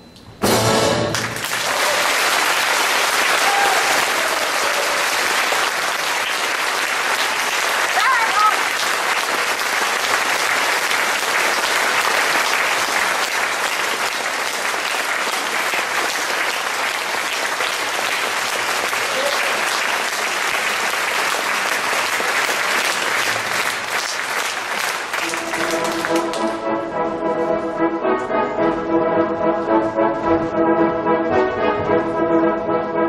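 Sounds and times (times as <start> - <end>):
orchestra playing: 0.4 - 1.6, 25.1 - 33.0
audience applauding: 1.0 - 26.6.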